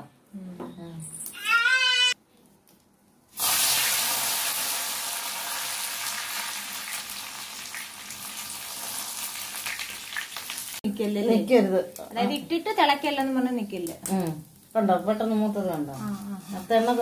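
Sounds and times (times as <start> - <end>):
oil crackles: 2.7 - 10.8, 11.7 - 17.0
herbs sizzling in hot oil: 3.3 - 17.0.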